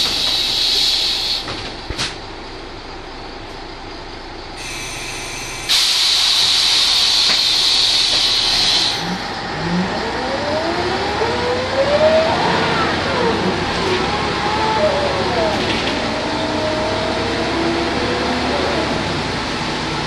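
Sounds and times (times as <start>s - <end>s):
compressed air hiss: 0.0s - 1.5s, 4.6s - 9.0s
bus diesel engine and gearbox whining: 0.0s - 20.0s.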